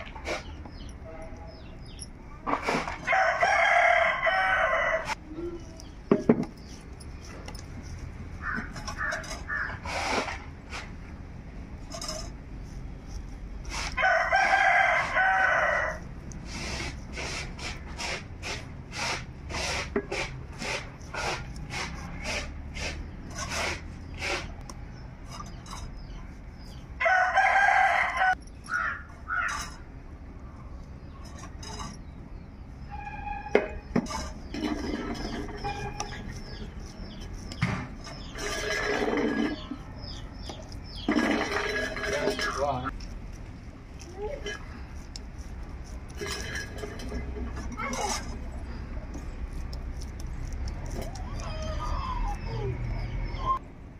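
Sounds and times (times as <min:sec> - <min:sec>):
rooster crowing: 0:03.0 - 0:05.2, 0:14.0 - 0:16.0, 0:27.0 - 0:29.5.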